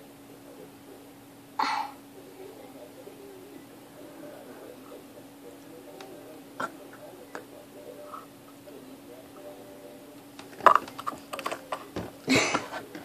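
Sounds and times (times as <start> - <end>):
faint steady hum: 0.0 - 13.0
handling clicks and taps: 10.4 - 13.0.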